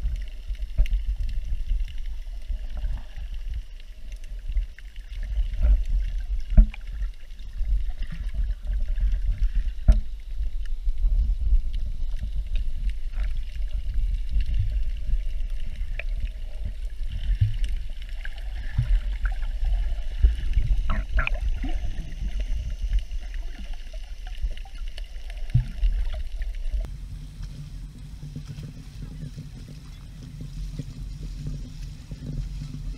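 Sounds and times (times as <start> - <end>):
muffled underwater rumble: 0.0 - 32.9.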